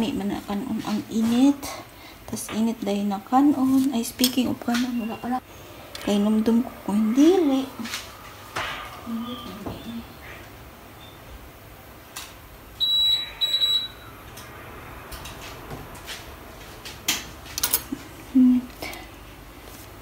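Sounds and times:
high-pitched electronic beeps: 12.8s - 14.1s.

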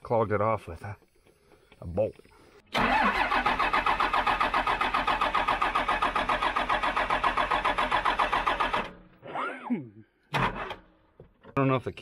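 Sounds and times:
diesel engine cranking without firing: 2.7s - 9.2s, 10.3s - 10.9s.

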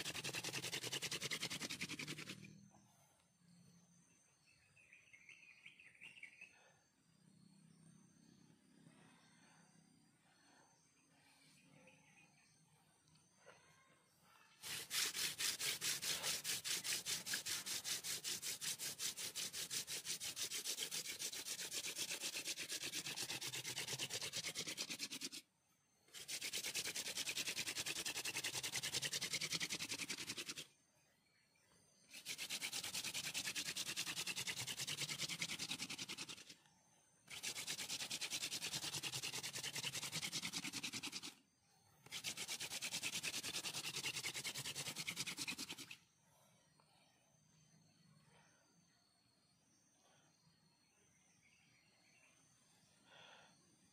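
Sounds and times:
wooden spindle grinding into board: 0.0s - 2.4s, 14.6s - 25.4s, 32.1s - 36.5s, 37.3s - 41.3s, 42.1s - 46.0s.

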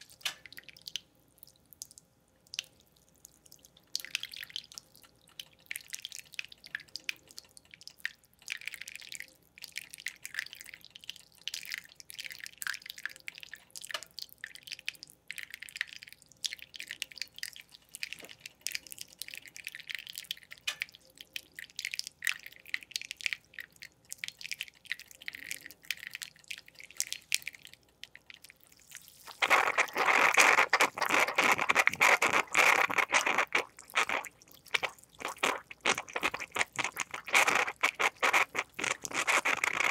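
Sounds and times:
moka pot coffee dripping and spitting: 0.0s - 39.9s
moka pot sputtering gurgle: 29.2s - 39.9s.

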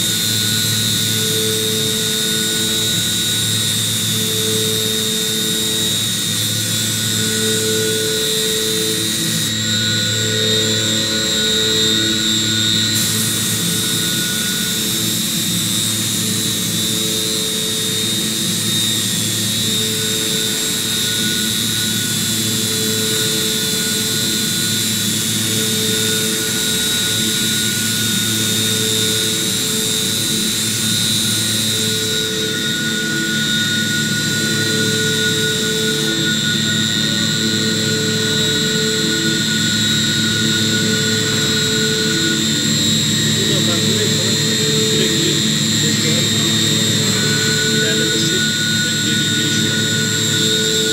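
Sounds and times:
high machine whine: 0.0s - 50.9s
low cutting tone: 0.0s - 50.9s.

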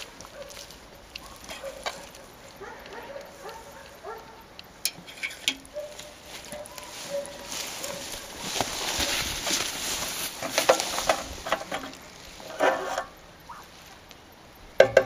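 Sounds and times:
metal clicks and knocks: 3.8s - 5.8s, 10.4s - 13.2s, 14.8s - 15.0s.

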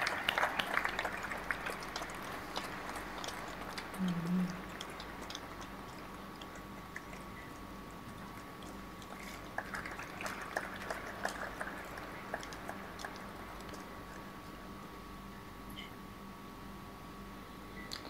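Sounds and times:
faint audience clapping: 0.0s - 7.3s, 8.2s - 14.2s
steady low hum: 0.0s - 18.0s.

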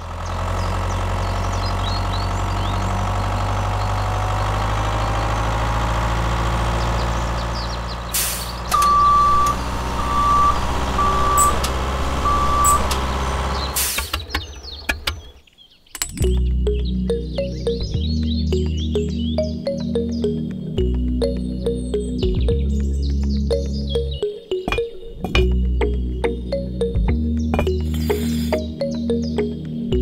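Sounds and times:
diesel truck engine idling: 0.0s - 15.3s
air brakes hissing: 8.1s - 9.5s, 13.7s - 14.3s
reversing beeps: 8.7s - 13.0s.

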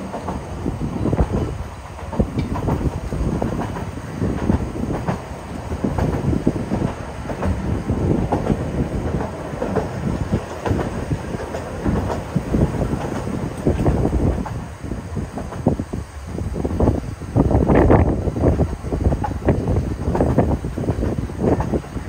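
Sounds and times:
wheels clattering and knocking: 0.0s - 14.7s
railway carriage rumbling on track: 0.0s - 22.0s.

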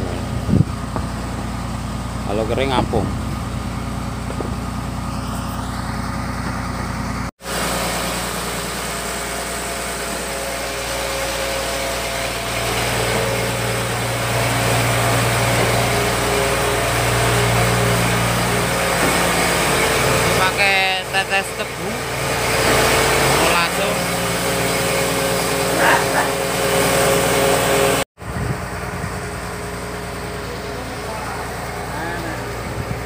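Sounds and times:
small machine engine running: 7.5s - 28.0s.

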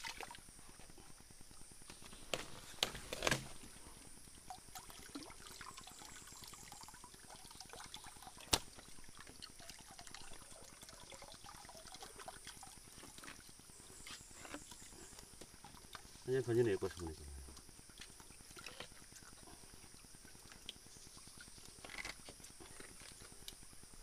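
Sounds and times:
stream water trickling: 0.0s - 24.0s.

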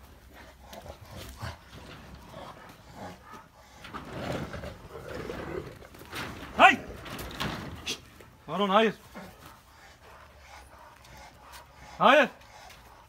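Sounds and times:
dogs making low vocal sounds: 0.0s - 6.1s, 7.8s - 13.0s.

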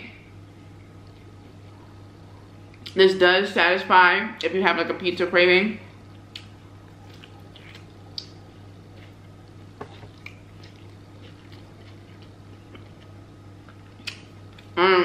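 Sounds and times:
faint low hum: 0.0s - 15.0s
person chewing: 6.2s - 14.8s.

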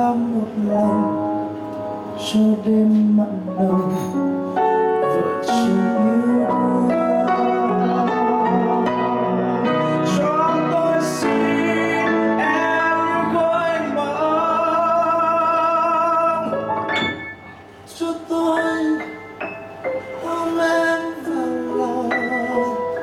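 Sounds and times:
man singing a slow ballad: 0.0s - 16.7s, 17.9s - 19.3s, 19.9s - 23.0s
piano accompaniment: 0.0s - 23.0s.

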